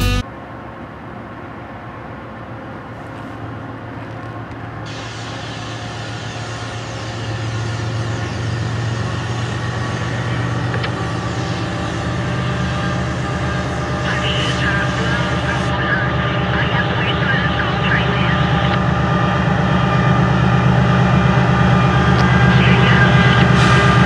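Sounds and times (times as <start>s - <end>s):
diesel locomotive drone: 0.0s - 24.0s
hiss: 4.9s - 10.4s.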